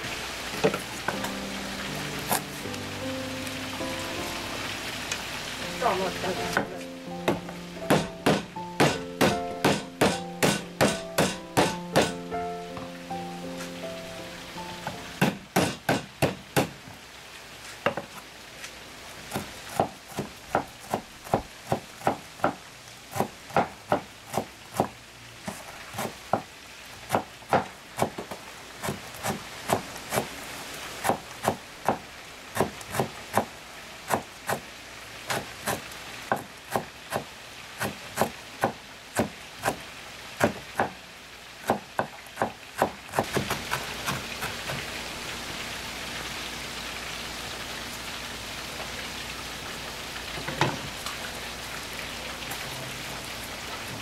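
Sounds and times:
knife chopping on wooden board: 0:07.3 - 0:12.2, 0:15.2 - 0:16.8, 0:41.7 - 0:44.8.

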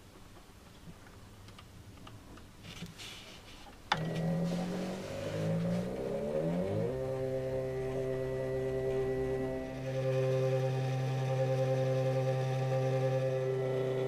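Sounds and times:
stepping motor whining hum: 0:03.9 - 0:14.0.

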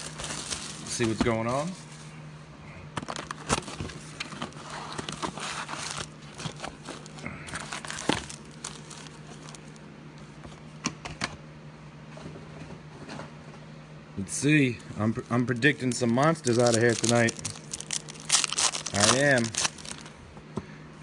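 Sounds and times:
foil packs crinkling: 0:00.0 - 0:01.8, 0:03.0 - 0:09.8, 0:14.8 - 0:20.2.

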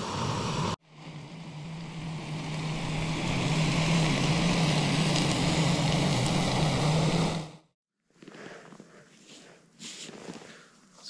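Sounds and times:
low hum: 0:00.0 - 0:07.6
gas stove hissing: 0:02.0 - 0:07.5.

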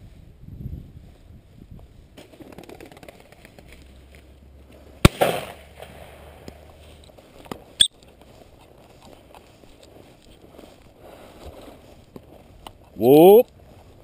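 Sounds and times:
loud sharp crack: 0:05.0 - 0:06.5.

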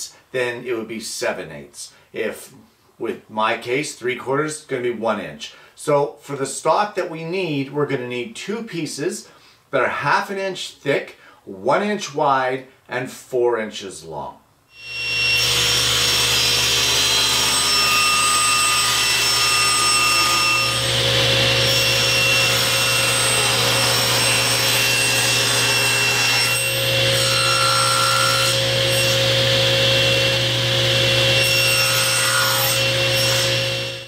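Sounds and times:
table saw cutting plastic: 0:14.8 - 0:34.0.

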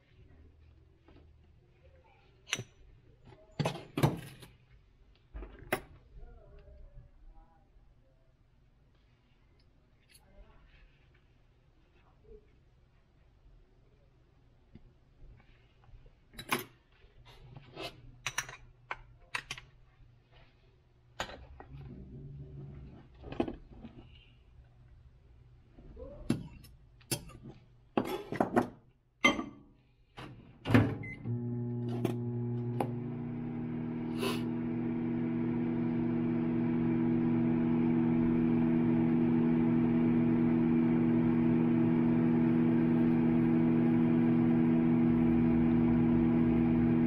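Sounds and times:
microwave oven humming: 0:30.8 - 0:47.0.

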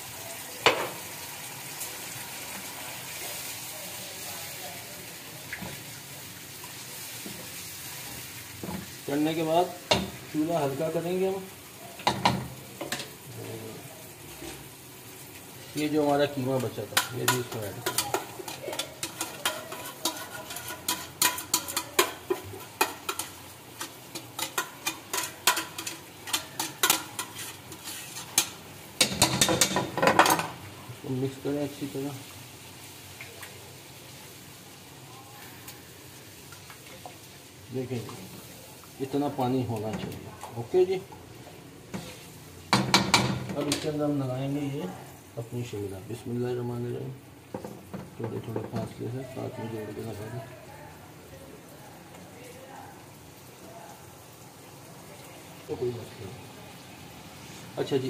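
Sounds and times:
spoon scraping a pan: 0:15.6 - 0:30.6, 0:41.9 - 0:44.0
sauce hissing and bubbling: 0:22.2 - 0:29.0, 0:53.1 - 0:57.9.

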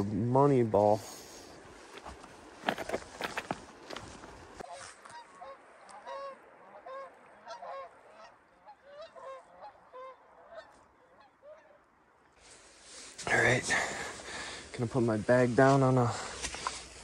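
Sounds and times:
geese honking: 0:04.6 - 0:11.9.

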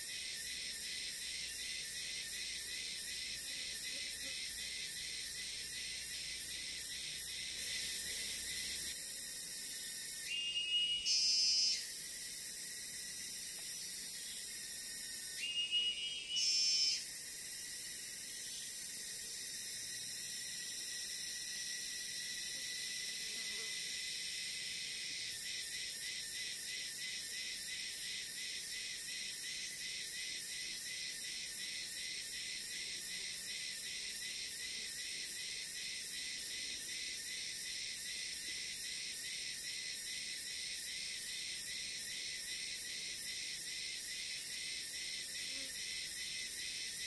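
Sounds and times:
insects chirring chorus: 0:00.0 - 0:47.0
pulsing insect call: 0:00.0 - 0:47.0
short loud insect call: 0:00.0 - 0:47.0.

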